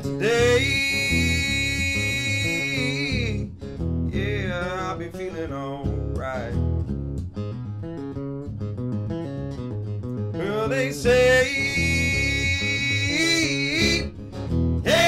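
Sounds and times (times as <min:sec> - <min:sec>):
man singing: 0:00.0 - 0:03.5, 0:04.1 - 0:06.6, 0:10.4 - 0:14.2
acoustic guitar strumming: 0:00.0 - 0:15.0.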